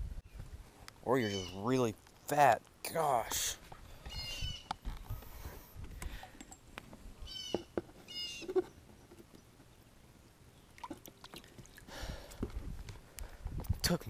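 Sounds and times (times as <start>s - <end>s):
high squeaky animal calls: 1.1s - 1.7s, 4.1s - 4.7s, 7.2s - 8.7s
faint water splashing: 10.7s - 12.5s.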